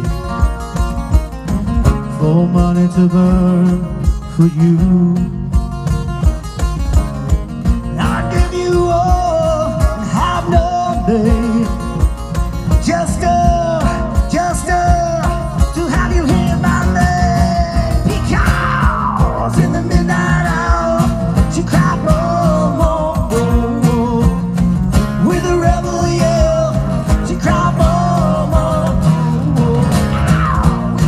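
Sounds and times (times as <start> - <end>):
drum beat: 0.0 - 31.0
live rock band playing: 0.0 - 31.0.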